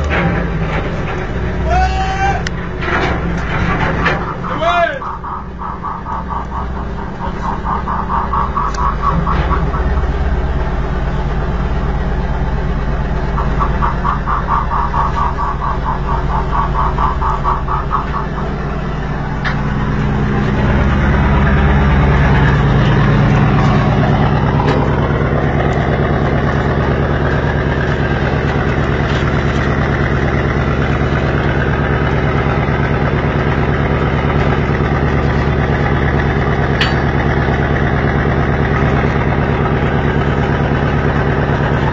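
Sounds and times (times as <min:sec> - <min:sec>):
boat engine running: 0:00.0 - 0:41.9
fast high pulsing sound: 0:03.8 - 0:31.6.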